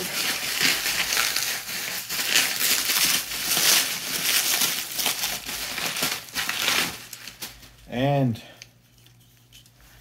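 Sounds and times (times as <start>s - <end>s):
packaging crumpling and crinkling: 0.0s - 7.9s.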